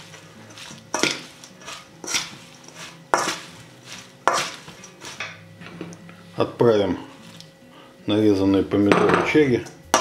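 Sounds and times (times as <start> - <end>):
leaves rustling: 0.0 - 5.2
utensil scraping metal bowl: 0.0 - 5.4.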